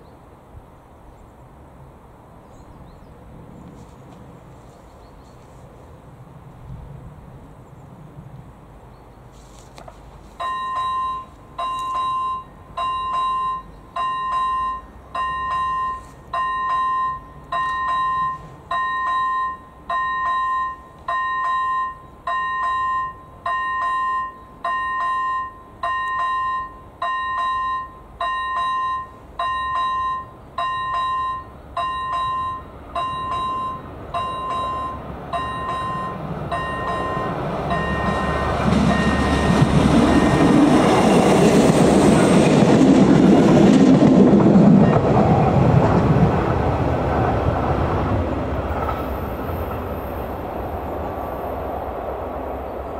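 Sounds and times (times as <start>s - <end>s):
diesel train rumble: 0.1s - 52.9s
level crossing bell ringing: 10.4s - 40.6s.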